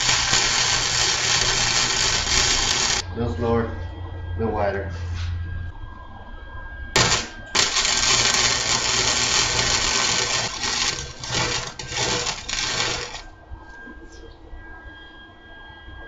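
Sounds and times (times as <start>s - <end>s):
welder arc crackling: 0.0s - 3.0s, 7.0s - 13.3s.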